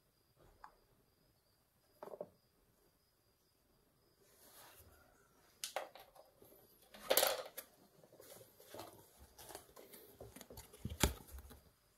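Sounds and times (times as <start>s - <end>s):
small hard objects clattering: 5.6s - 11.0s.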